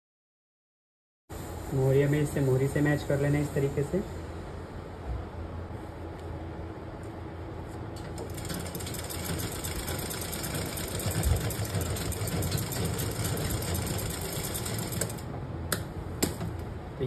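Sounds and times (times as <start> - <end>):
sewing machine motor hum: 8.0 - 15.3.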